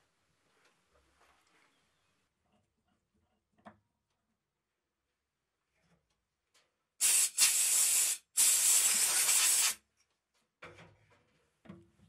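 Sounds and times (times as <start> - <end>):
spray hissing: 7.0 - 9.8.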